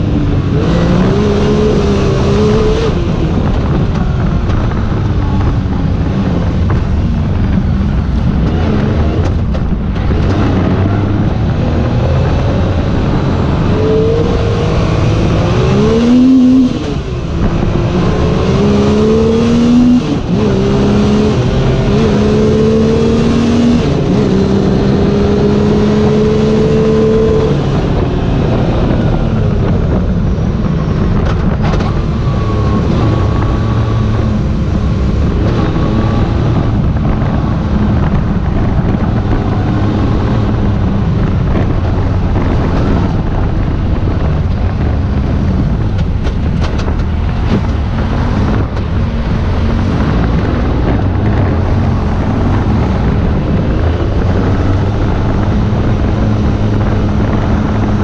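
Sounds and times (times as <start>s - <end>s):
engine revving through gears: 0.0s - 30.0s, 30.6s - 58.0s.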